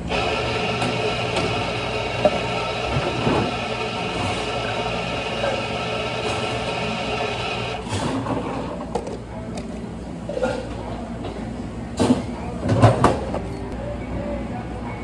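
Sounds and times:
machine humming with whine: 0.0 - 7.8.

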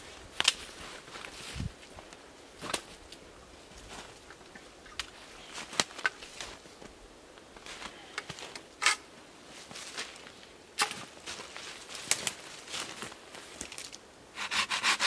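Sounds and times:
dry twigs snapping and crunching: 0.4 - 0.7, 4.9 - 6.6, 10.8 - 14.0.

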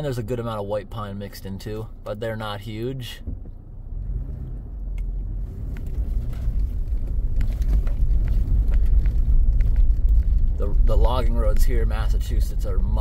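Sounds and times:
engine and tyre rumble: 0.0 - 13.0.

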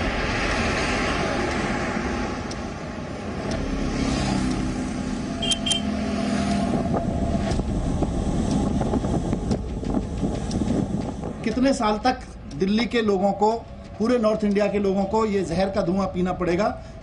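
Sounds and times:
cars driving past: 0.0 - 11.4
short high beeps: 5.4 - 5.9.

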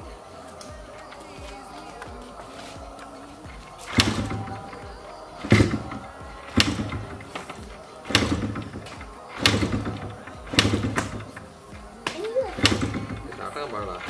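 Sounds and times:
engine turning over: 3.5 - 11.7, 12.4 - 14.0
motorcycle kick-starter clunk: 3.5 - 14.0.

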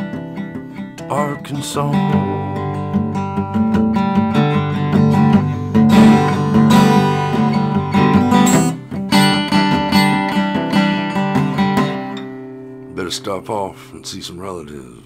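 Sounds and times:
acoustic guitar strumming: 0.0 - 14.9
harmonica notes: 2.0 - 14.0.

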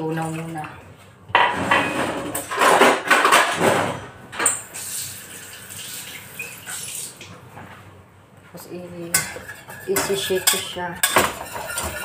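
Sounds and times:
dishes clattering: 0.2 - 4.6, 9.1 - 12.0.

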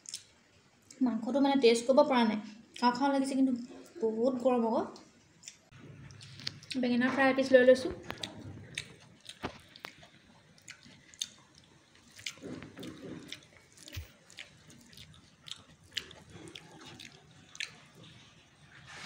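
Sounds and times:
chewing: 4.9 - 6.9, 7.8 - 18.7.

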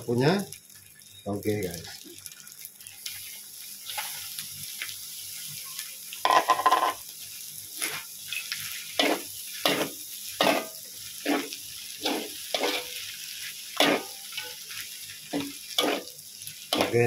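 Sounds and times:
frying sizzle: 0.0 - 17.0
metal spatula scraping wok: 7.8 - 13.0, 13.8 - 14.7, 15.3 - 17.0.

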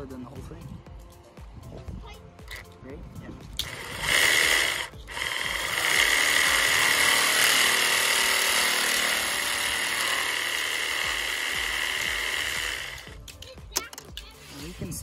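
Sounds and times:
cordless drill boring plastic pipe: 3.6 - 13.2.

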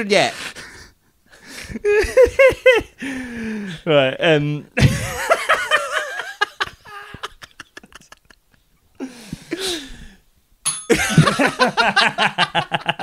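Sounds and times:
men laughing hard: 1.3 - 3.4, 4.8 - 9.9, 10.9 - 13.0
gasping breaths: 3.0 - 3.9, 9.0 - 10.2.

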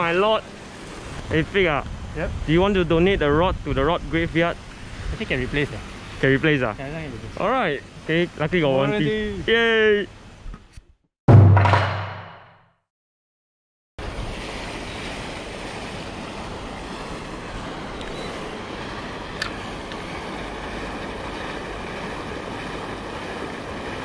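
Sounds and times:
rushing wind and water: 0.0 - 10.6, 14.0 - 24.0
deep boom: 11.3 - 12.5.

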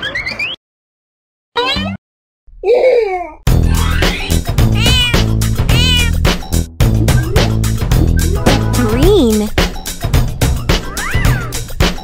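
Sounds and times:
cartoon voice sound effect: 2.7 - 6.2
children's background music: 3.5 - 12.0.

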